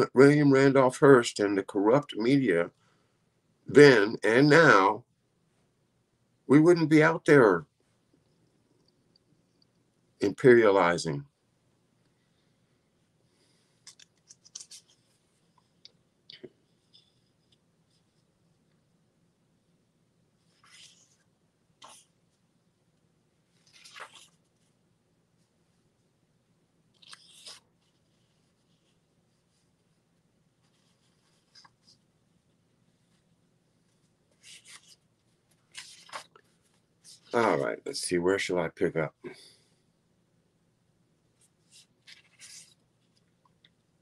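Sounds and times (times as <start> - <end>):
book pages rustling: 13.7 - 15.8, 20.4 - 22.2, 23.4 - 24.8, 27.0 - 30.0, 30.6 - 32.1, 32.8 - 37.6, 41.4 - 43.4.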